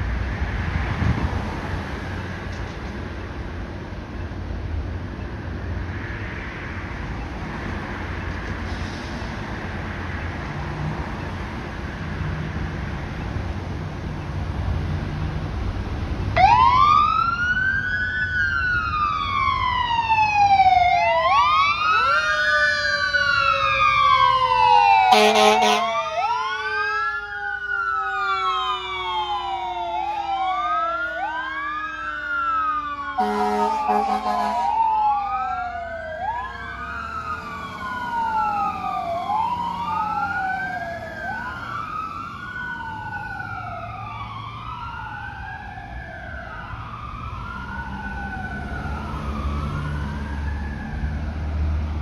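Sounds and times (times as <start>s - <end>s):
fire engine wail siren: 0.0s - 52.0s
air horn blasts: 25.1s - 25.9s, 33.2s - 34.8s.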